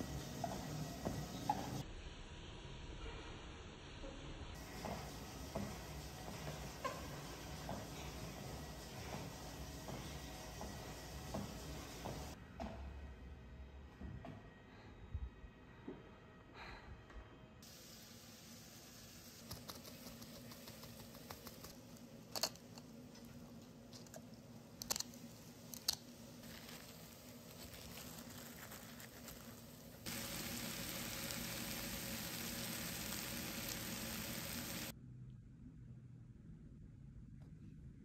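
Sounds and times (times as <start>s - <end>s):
vegetables sizzling in a frying pan: 4.6s - 12.4s, 17.6s - 20.3s, 30.0s - 34.9s.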